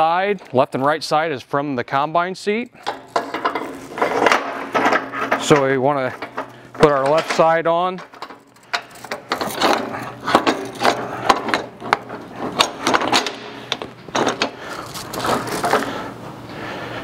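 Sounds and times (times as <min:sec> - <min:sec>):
chain links clattering: 0:08.0 - 0:15.8.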